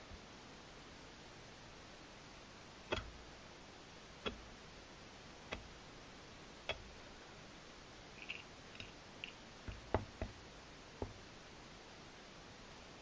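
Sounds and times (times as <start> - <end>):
faint small ticks: 8.2 - 10.4.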